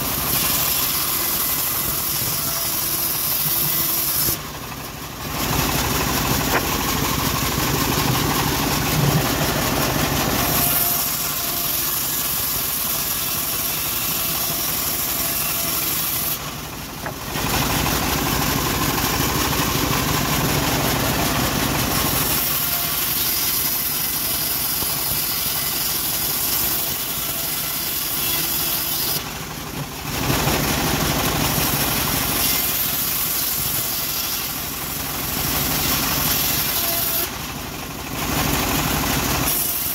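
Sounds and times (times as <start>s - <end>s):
bandsaw mill cutting wood: 0.0s - 39.9s.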